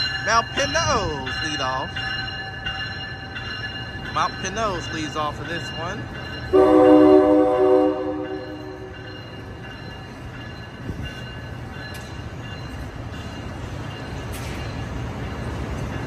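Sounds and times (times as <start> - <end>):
train cars rumbling past: 0.0 - 16.0
train horn blast: 6.5 - 8.9.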